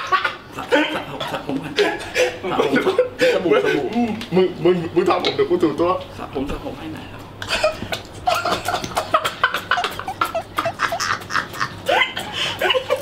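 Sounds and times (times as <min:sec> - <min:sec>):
men giggling and snickering: 0:00.0 - 0:04.6, 0:07.4 - 0:13.0.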